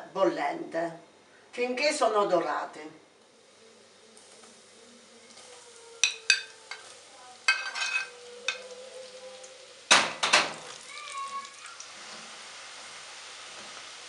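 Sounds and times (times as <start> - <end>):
oil sizzling: 2.5 - 14.0
plate clinking on metal basket: 7.5 - 8.6.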